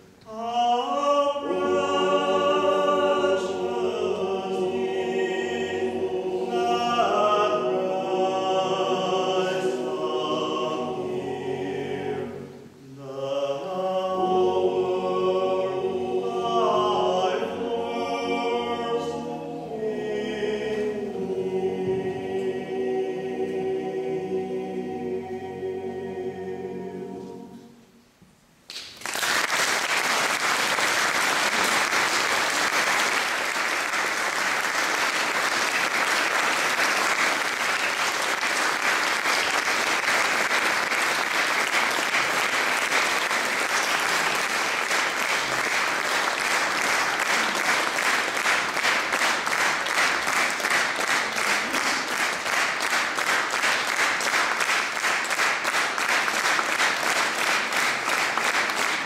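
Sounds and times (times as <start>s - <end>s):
choir singing final chord: 0.2s - 28.0s
audience applause in church: 28.7s - 59.0s.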